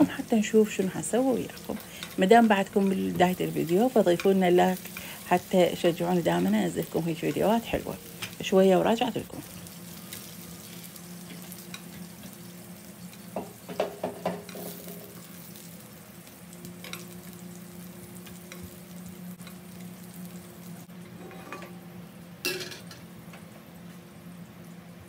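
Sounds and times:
patties sizzling in oil: 0:00.0 - 0:25.0
metal tongs clicking on pan: 0:03.6 - 0:05.0, 0:16.8 - 0:17.1.

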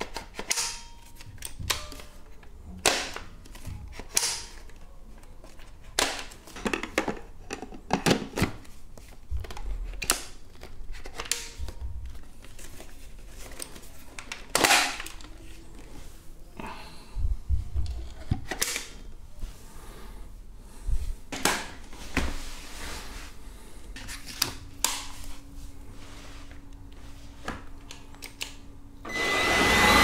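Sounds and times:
plastic parts clicking and knocking: 0:05.6 - 0:08.6.

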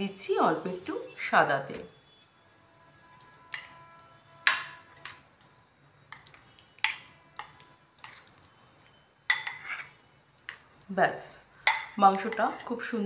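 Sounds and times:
metal spoon clinking against bowl: 0:03.5 - 0:05.2, 0:09.3 - 0:09.9, 0:11.6 - 0:12.8.

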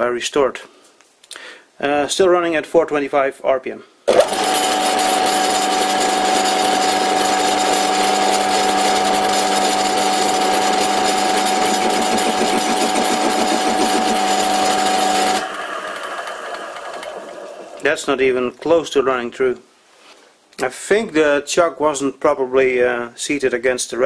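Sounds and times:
lathe tool cutting metal: 0:04.1 - 0:17.9
lathe running: 0:04.1 - 0:18.1.

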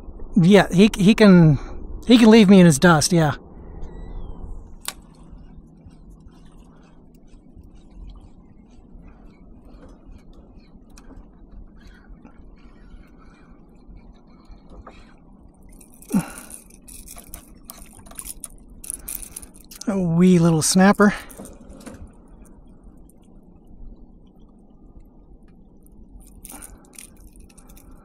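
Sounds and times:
fishing reel clicking: 0:15.6 - 0:19.9, 0:26.2 - 0:28.0.

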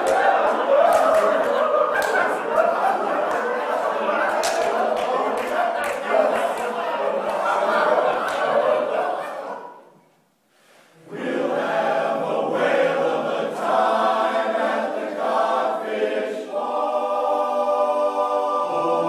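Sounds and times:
male chorus singing a cappella: 0:11.0 - 0:19.0.

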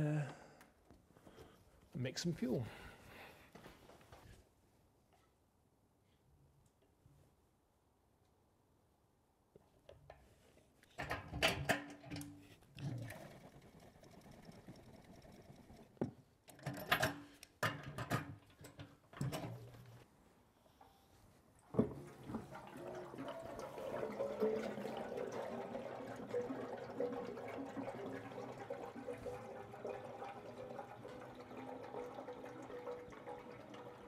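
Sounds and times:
fuel pouring into container: 0:12.8 - 0:16.0, 0:21.8 - 0:34.0
fuel cans clunking: 0:21.7 - 0:34.0.

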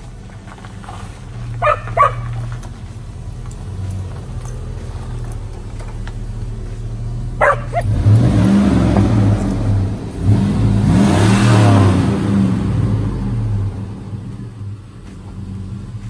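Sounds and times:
pickup engine idling and revving: 0:00.0 - 0:16.0
dog yelp: 0:01.6 - 0:02.4, 0:07.4 - 0:08.0.

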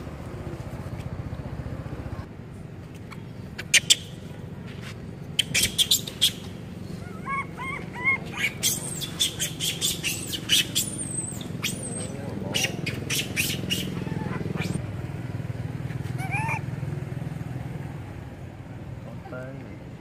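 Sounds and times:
macaques squealing and chirping: 0:03.1 - 0:04.2, 0:05.3 - 0:14.8, 0:16.0 - 0:16.7.

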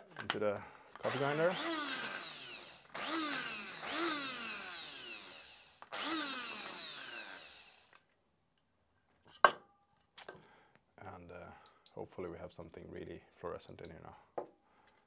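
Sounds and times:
coffee grinder motor: 0:01.0 - 0:08.0.

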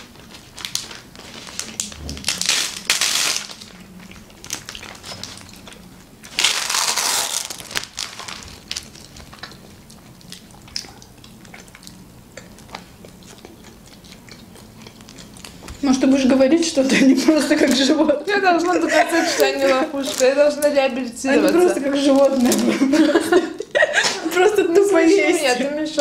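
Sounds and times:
plastic film rustling and crinkling: 0:00.0 - 0:10.5, 0:17.5 - 0:23.0.

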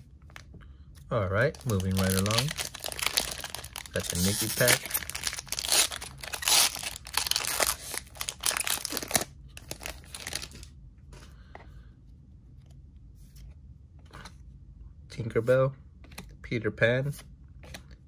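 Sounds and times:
foil wrapper tearing and crinkling: 0:01.6 - 0:10.7.

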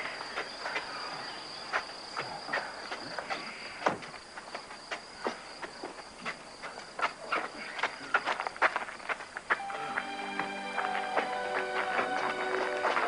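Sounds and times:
footsteps on dirt path: 0:00.0 - 0:13.0
high insect trill: 0:00.0 - 0:13.0.

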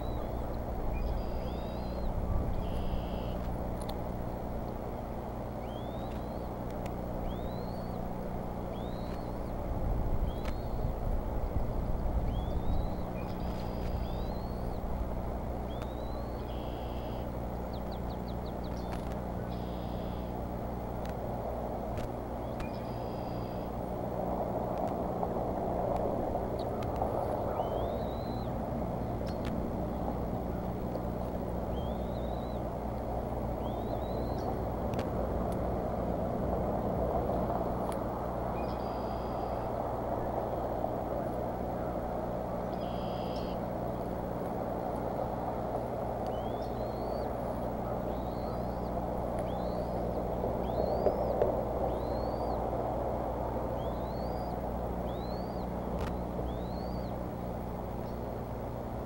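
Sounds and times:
bird chirps: 0:00.0 - 0:03.4, 0:05.6 - 0:06.6, 0:07.2 - 0:09.6, 0:10.2 - 0:10.9, 0:12.2 - 0:14.9, 0:15.6 - 0:20.3, 0:22.4 - 0:23.7, 0:27.4 - 0:28.6, 0:31.7 - 0:32.6, 0:33.6 - 0:34.6, 0:38.6 - 0:39.7, 0:42.6 - 0:43.6, 0:46.3 - 0:52.6, 0:53.8 - 0:57.2
thin rising chirps: 0:00.0 - 0:03.4, 0:05.5 - 0:06.6, 0:07.2 - 0:09.6, 0:12.2 - 0:14.9, 0:27.3 - 0:28.6
distant road traffic rumble: 0:00.0 - 0:59.0
low electrical hum: 0:00.0 - 0:59.0.

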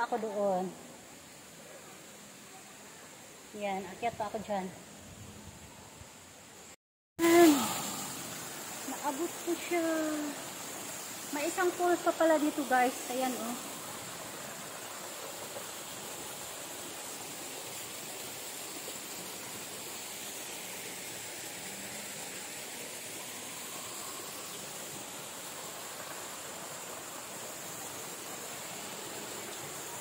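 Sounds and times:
waterfall pouring into pool: 0:07.2 - 0:30.0.

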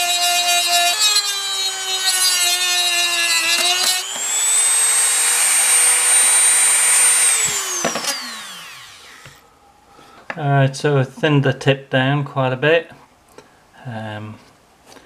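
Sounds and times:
rotary tool grinding metal: 0:00.0 - 0:09.4
motor winding down: 0:03.6 - 0:09.4.

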